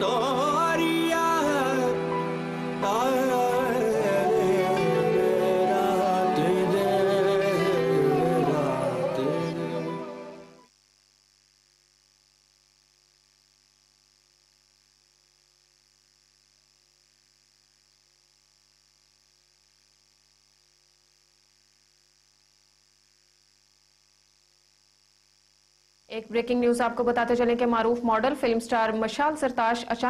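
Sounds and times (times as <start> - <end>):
music: 0.0 - 10.6
faint steady hum and hiss: 0.0 - 30.0.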